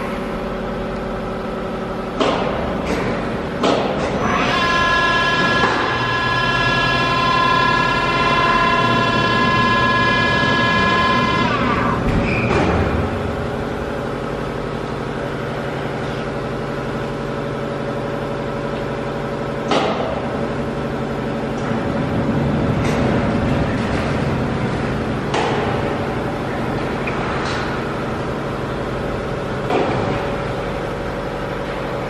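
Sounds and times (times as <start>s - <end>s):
high machine whine: 0.0s - 32.0s
machinery hum: 0.0s - 32.0s.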